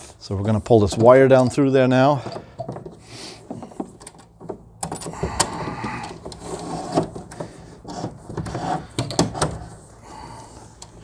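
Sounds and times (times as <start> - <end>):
cable jacket rustling and scraping: 5.2 - 11.0.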